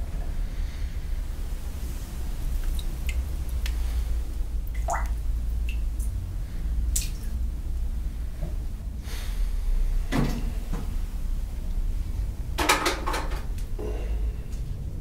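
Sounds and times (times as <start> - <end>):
steady low hum: 0.0 - 15.0
water dripping and splashing: 1.9 - 7.8.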